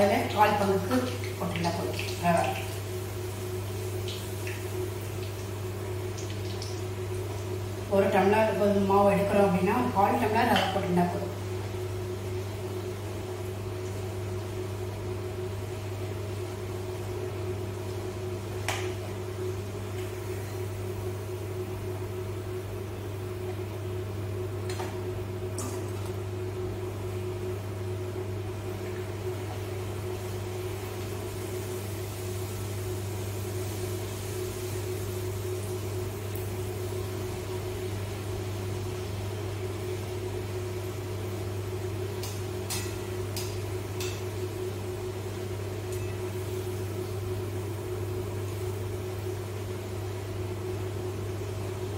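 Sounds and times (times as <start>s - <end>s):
low machine hum: 0.0s - 51.9s
food sizzling in hot oil: 0.2s - 7.9s, 30.0s - 40.1s, 40.8s - 49.4s.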